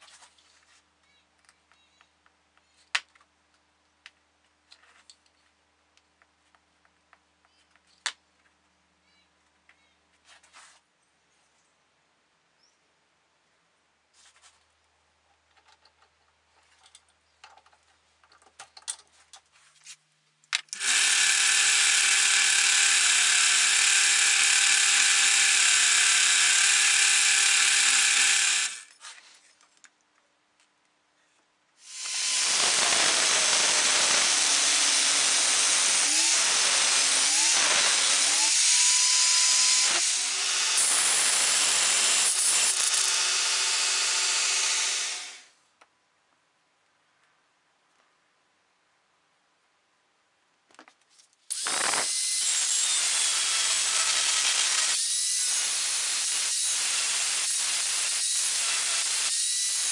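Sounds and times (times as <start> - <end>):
drill chuck clicks and rattles: 20.6 - 28.9
drill motor running: 20.8 - 28.9, 31.9 - 45.5, 51.5 - 59.9
power tool grinding metal: 20.8 - 28.9, 31.9 - 45.4, 51.5 - 59.9.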